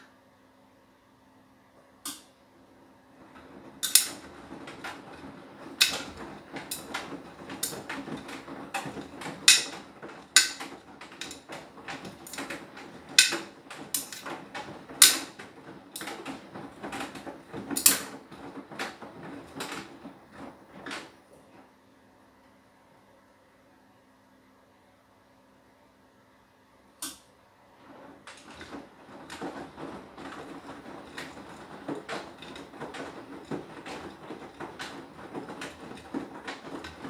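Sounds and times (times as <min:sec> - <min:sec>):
washing machine drum tumbling: 0:02.1 - 0:21.7, 0:27.7 - 0:37.0.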